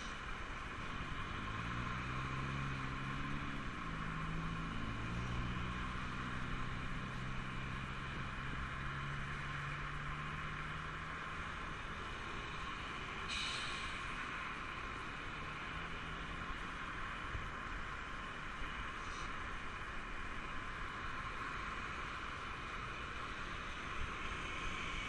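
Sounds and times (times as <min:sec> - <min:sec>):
tyres hissing and passing cars: 0:00.0 - 0:25.0
vehicle engine pulling away: 0:00.9 - 0:12.7.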